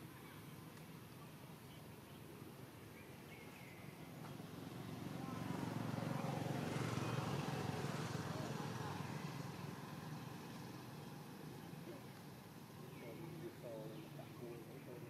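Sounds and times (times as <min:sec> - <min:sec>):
faint bird chirp: 0:00.0 - 0:04.6, 0:10.8 - 0:15.0.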